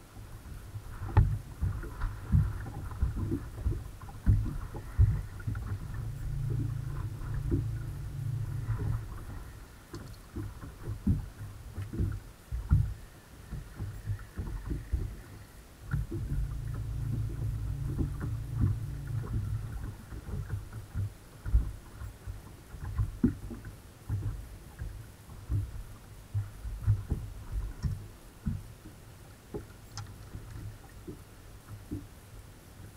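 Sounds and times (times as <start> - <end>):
low thumps and bumps: 1.2 - 9.6, 15.9 - 21.7
electric trolling motor humming: 4.8 - 9.9, 14.9 - 20.8.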